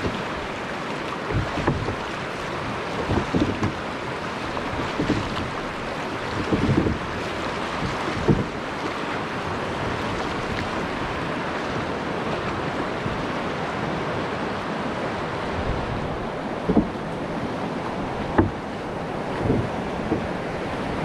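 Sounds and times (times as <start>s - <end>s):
rushing river water: 0.0s - 21.0s
short thump: 16.6s - 17.0s, 18.3s - 18.6s.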